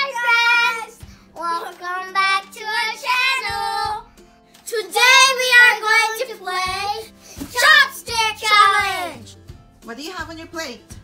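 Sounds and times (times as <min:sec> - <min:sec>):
children singing: 0:00.0 - 0:04.0, 0:04.8 - 0:09.2.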